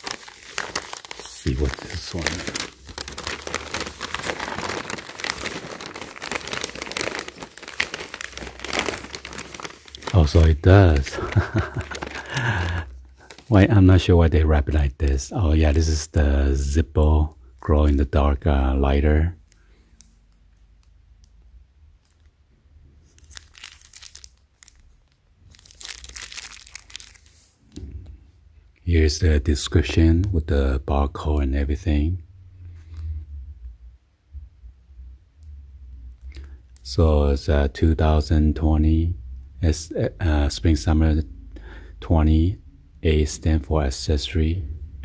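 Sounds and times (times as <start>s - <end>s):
paper crinkling and rustling: 0.0s - 13.7s, 23.0s - 27.6s.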